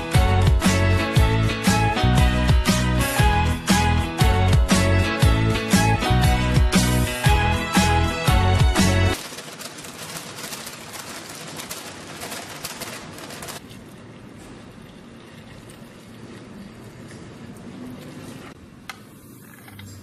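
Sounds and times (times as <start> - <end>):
flour pouring into metal bowl: 9.2 - 13.6
water pouring from jug: 14.8 - 18.5.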